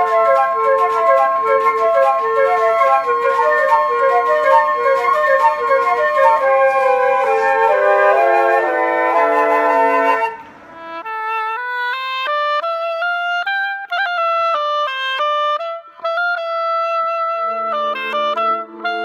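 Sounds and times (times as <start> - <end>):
flutes playing in harmony: 0.0 - 19.0
solo oboe melody: 0.0 - 19.0
low held band chords: 17.0 - 19.0.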